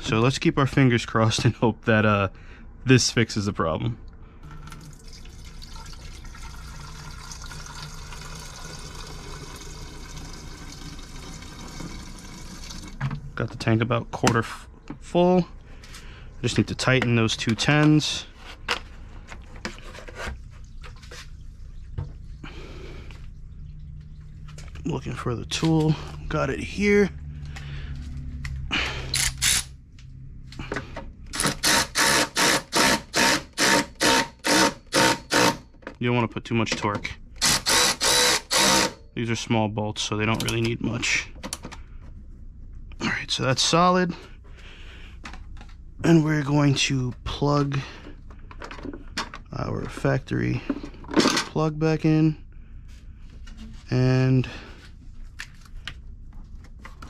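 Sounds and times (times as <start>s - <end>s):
liquid pouring and splashing: 4.5s - 13.0s.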